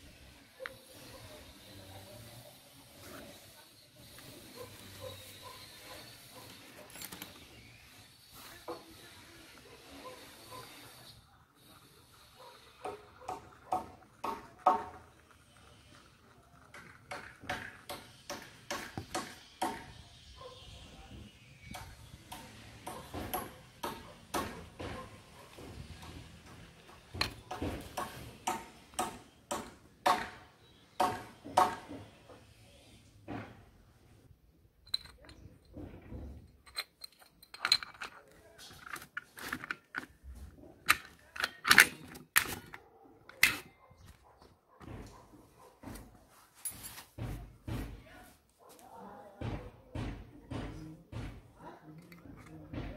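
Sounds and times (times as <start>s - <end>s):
metallic clicks and clinks: 34.8s - 35.8s, 36.5s - 40.1s.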